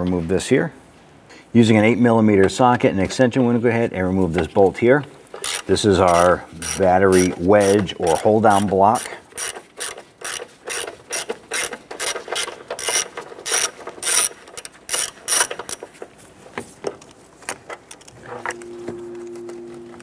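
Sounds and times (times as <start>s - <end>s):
hand ratchet clicking: 5.3s - 16.0s.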